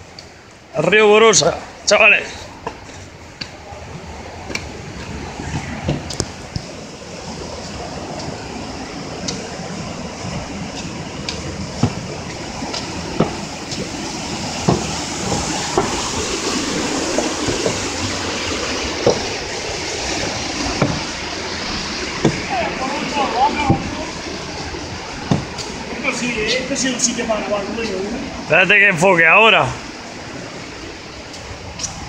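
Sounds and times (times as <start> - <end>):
rushing river water: 0.0 - 32.0
footsteps on wooden boards: 9.2 - 22.5, 23.1 - 26.7.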